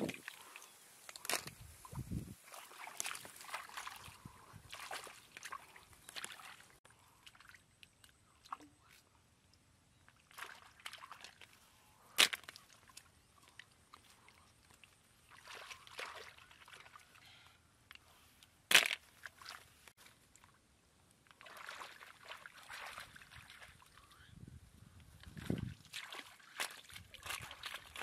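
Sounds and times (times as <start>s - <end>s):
hands sloshing through muddy water: 0.0s - 9.0s, 10.2s - 11.6s, 12.2s - 17.2s, 21.3s - 24.1s, 25.2s - 28.0s.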